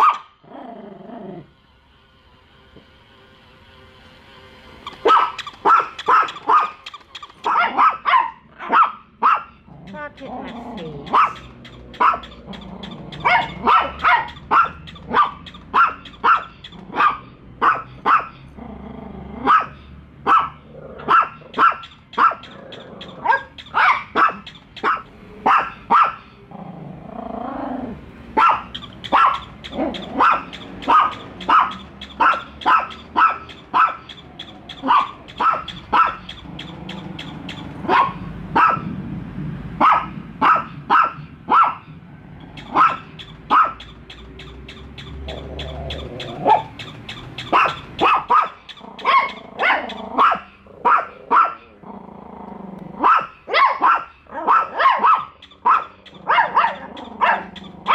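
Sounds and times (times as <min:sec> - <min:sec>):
small dogs barking: 0:00.0 - 0:00.5, 0:04.9 - 0:57.9.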